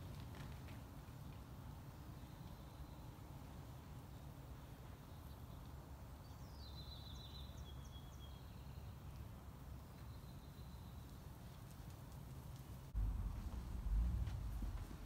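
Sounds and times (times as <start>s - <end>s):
faint bird song: 1.1s - 12.6s
low outdoor rumble: 9.1s - 15.0s.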